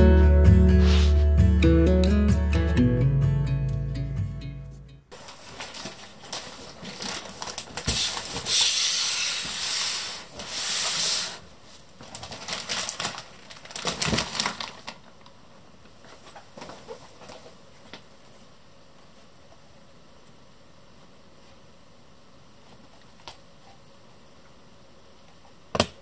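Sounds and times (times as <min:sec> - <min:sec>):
packaging rustling: 0:05.1 - 0:18.0.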